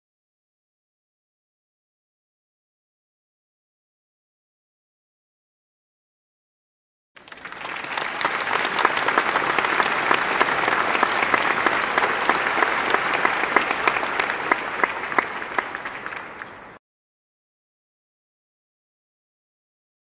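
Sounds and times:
applause: 0:07.2 - 0:16.8.

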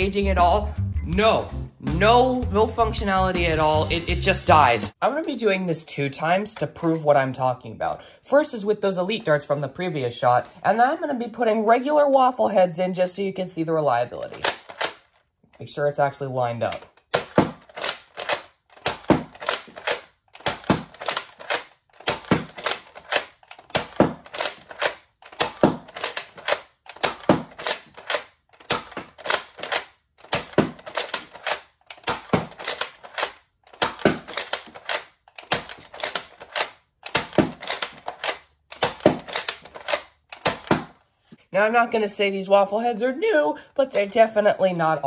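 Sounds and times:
toy dart blaster pumped and fired: 0:17.1 - 0:41.0.

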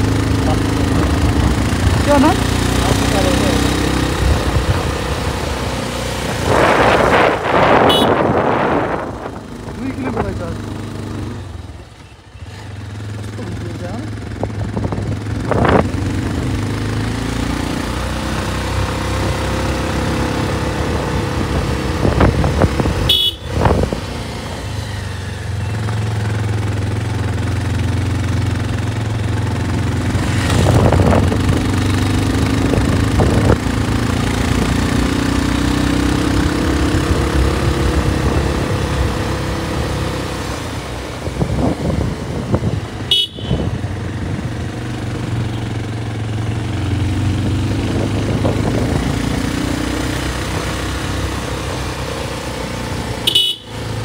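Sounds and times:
motorcycle engine running: 0:00.0 - 0:54.0
wind rushing over microphone: 0:03.8 - 0:10.6, 0:14.3 - 0:17.2, 0:18.5 - 0:25.0, 0:29.9 - 0:45.4, 0:46.1 - 0:52.5.

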